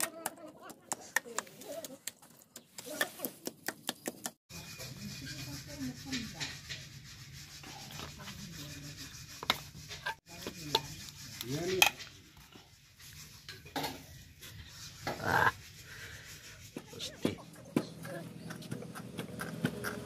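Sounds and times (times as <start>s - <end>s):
metal pestle scraping a pot: 4.5s - 17.1s.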